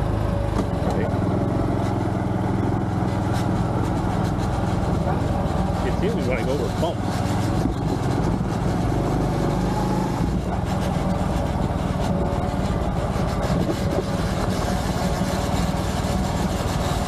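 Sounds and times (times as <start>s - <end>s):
motorcycle engine running: 0.0s - 17.0s
wind rushing over microphone: 2.4s - 16.0s.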